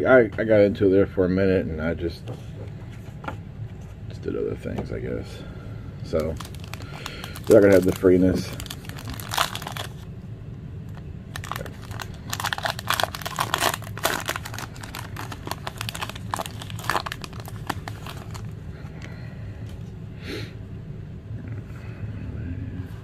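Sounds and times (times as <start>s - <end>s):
foil wrapper crinkling and tearing: 6.1s - 10.0s, 11.3s - 18.6s.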